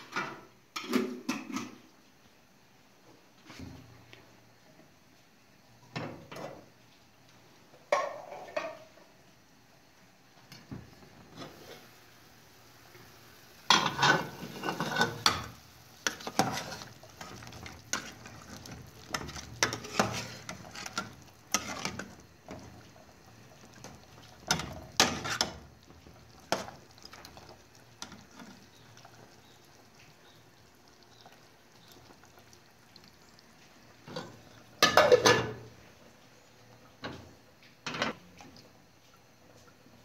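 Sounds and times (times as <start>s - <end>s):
metal ladle scraping pot: 13.7s - 22.6s, 24.4s - 25.6s.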